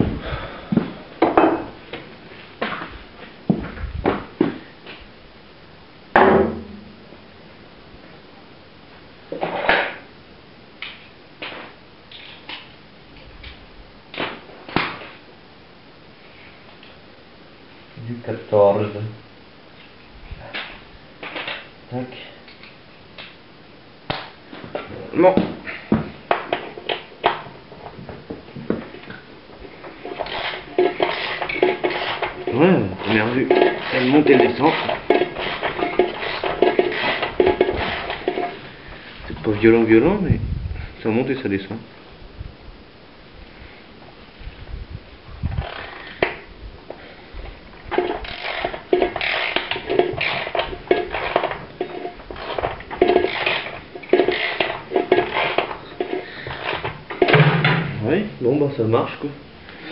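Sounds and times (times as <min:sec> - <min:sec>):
metal hand tools clanking: 0:29.8 - 0:38.7, 0:47.9 - 0:58.0
spanner clicking and scraping: 0:30.0 - 0:38.7, 0:47.9 - 0:57.4.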